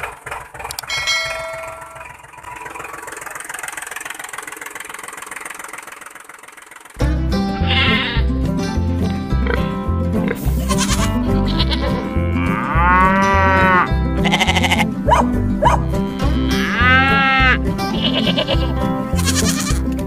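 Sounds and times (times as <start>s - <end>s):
background music with steady beat: 7.0s - 20.0s
wavering bleat sound effect: 7.5s - 8.3s, 10.3s - 14.9s, 15.9s - 19.9s.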